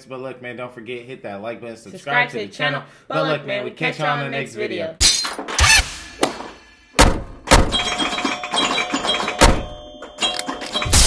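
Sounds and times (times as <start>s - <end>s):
sharp thuds and crash hits: 5.3s - 8.0s.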